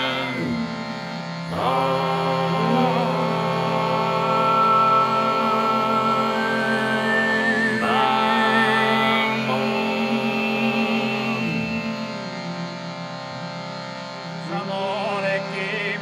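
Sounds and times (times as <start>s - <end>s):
male voices singing low drone: 0.0s - 16.0s
whistle-like overtone melody: 5.7s - 9.8s.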